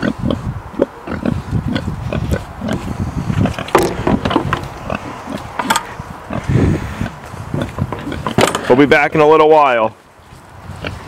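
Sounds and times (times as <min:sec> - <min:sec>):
pigs grunting: 0:00.0 - 0:08.6
sharp knocks: 0:03.7 - 0:04.7.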